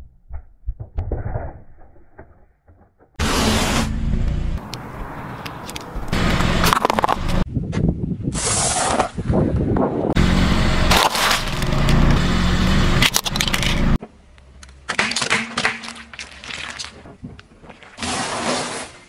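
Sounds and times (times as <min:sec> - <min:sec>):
car hum: 0:03.2 - 0:07.5, 0:10.2 - 0:14.9
tyre crushing small objects: 0:06.6 - 0:07.4, 0:10.9 - 0:12.2, 0:14.6 - 0:19.0.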